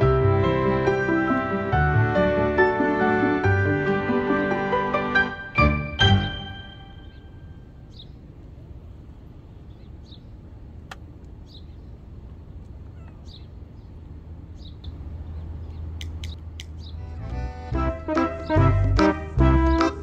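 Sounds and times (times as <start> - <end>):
sharp click: 16.0 - 16.8.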